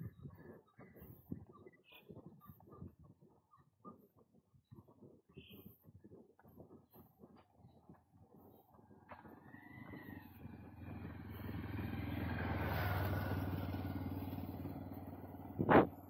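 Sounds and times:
motorcycle passing: 8.6s - 16.0s.

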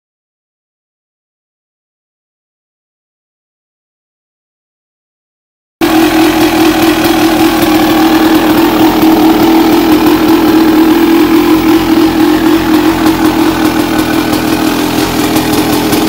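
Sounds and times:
motorcycle engine idling: 5.8s - 16.0s.

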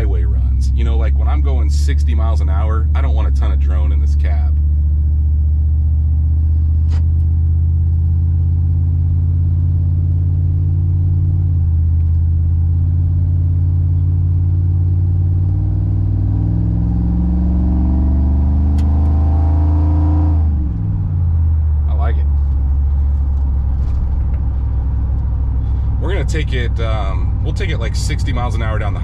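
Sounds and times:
truck engine drone from inside: 0.0s - 29.0s.

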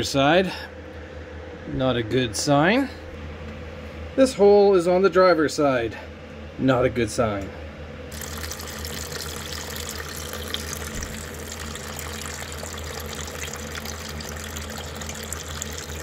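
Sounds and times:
water pouring into plastic bucket: 8.1s - 16.0s.

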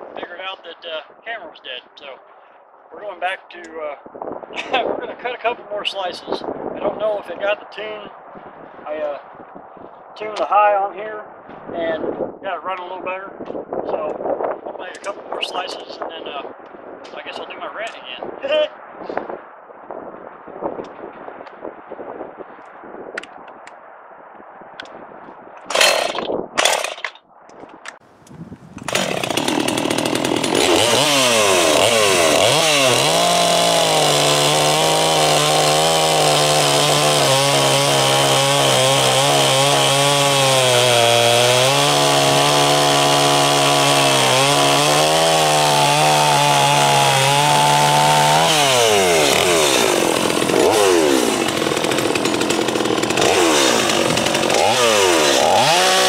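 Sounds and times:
chainsaw cutting a log: 25.7s - 27.0s, 28.8s - 56.0s.

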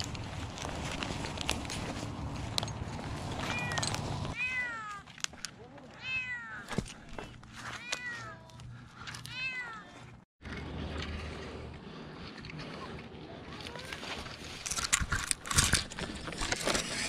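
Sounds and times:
cat meowing: 6.0s - 6.6s.

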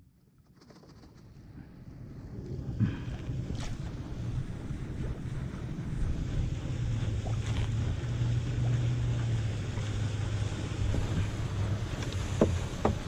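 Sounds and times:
water around canoe: 1.2s - 13.0s
motorboat engine humming: 1.4s - 13.0s
wind on microphone: 2.0s - 13.0s.

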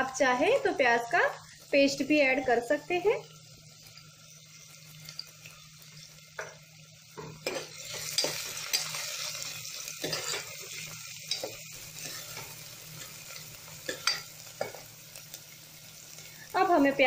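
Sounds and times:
onions sizzling in oil: 0.0s - 17.0s
spoon scraping a pot: 10.0s - 12.5s.

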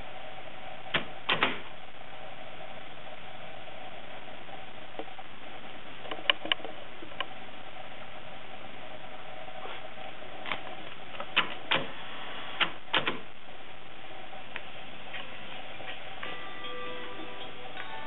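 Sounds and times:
faint hum: 0.0s - 18.0s
tape hiss: 0.0s - 18.0s.

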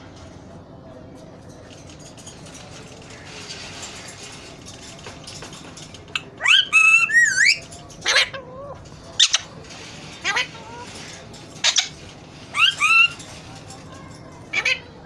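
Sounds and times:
parakeets calling: 6.2s - 13.4s, 14.4s - 15.0s.

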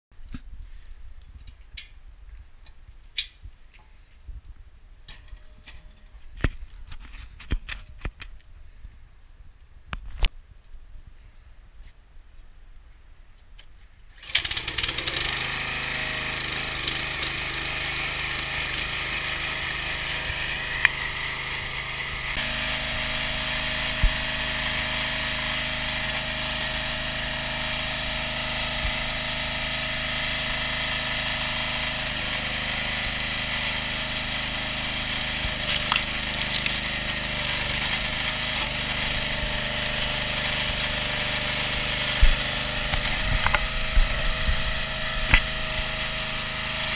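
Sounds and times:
petrol engine starting and running: 14.2s - 46.9s.

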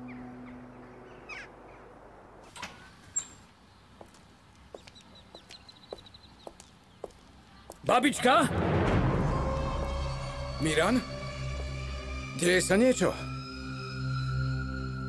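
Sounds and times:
birds chirping and calling: 0.0s - 2.0s, 2.6s - 7.3s
faint footsteps: 3.4s - 7.9s.

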